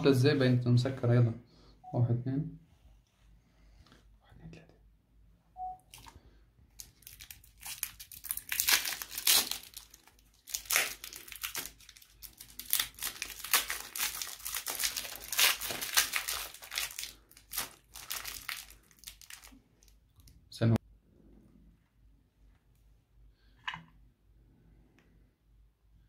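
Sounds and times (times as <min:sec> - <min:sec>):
cellophane wrapper crinkling: 0:05.9 - 0:20.4.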